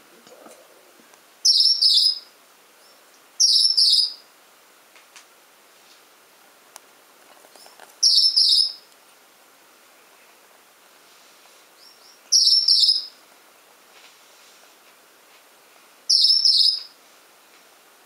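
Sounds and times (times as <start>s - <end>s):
finch high-pitched call: 1.4s - 2.3s, 3.4s - 4.2s, 8.0s - 8.8s, 11.8s - 13.2s, 16.1s - 17.0s.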